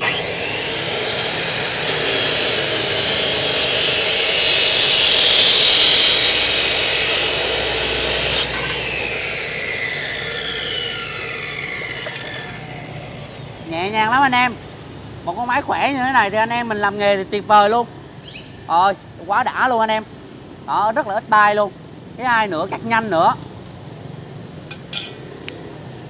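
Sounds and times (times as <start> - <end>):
motor winding down whine: 0.0 - 13.6
cut-off saw grinding steel: 0.0 - 14.4, 24.7 - 25.4
metal clunk: 24.7 - 25.3.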